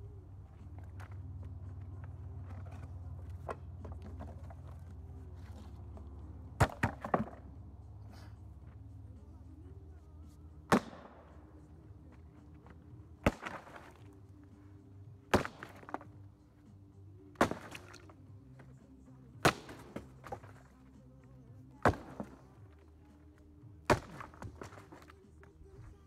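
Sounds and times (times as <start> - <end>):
splintering wood and rattling debris: 2.4 - 7.4, 12.6 - 14.1, 15.3 - 16.2, 17.4 - 18.1, 21.8 - 22.8, 23.9 - 25.2.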